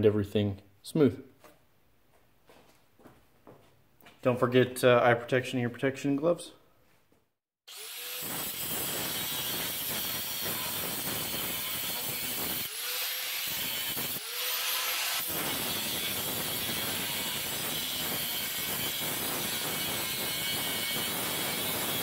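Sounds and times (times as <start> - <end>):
angle grinder cutting steel: 7.7 - 22.0.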